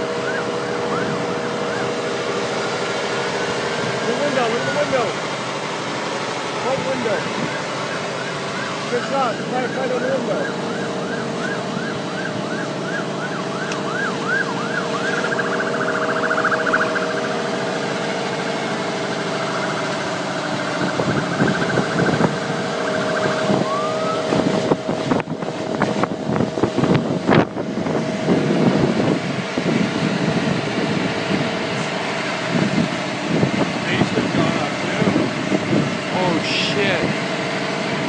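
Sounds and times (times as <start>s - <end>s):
short rising siren whoop: 0.0s - 2.8s, 7.4s - 17.7s, 18.7s - 24.8s
emergency vehicle siren yelping: 0.0s - 38.0s.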